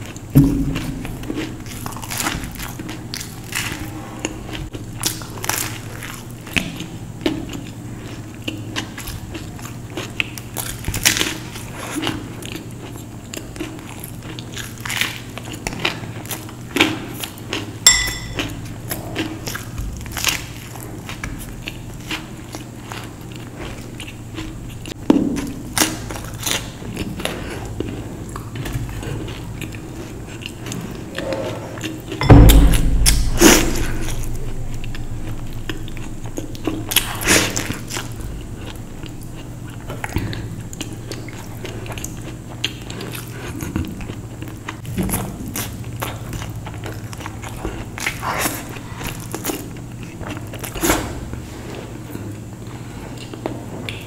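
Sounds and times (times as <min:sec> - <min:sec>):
person chewing food: 0:00.0 - 0:54.0
loud thump: 0:00.4 - 0:01.0, 0:32.2 - 0:35.6.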